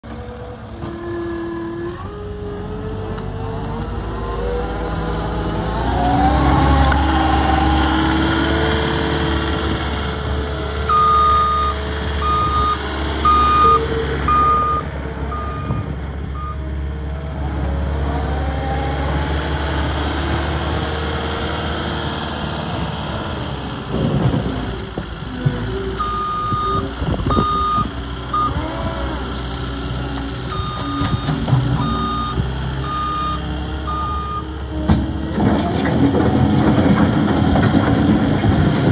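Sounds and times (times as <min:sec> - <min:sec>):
diesel engine revving: 0:00.0 - 0:38.9
backup alarm beeping: 0:10.9 - 0:16.6, 0:30.5 - 0:34.4.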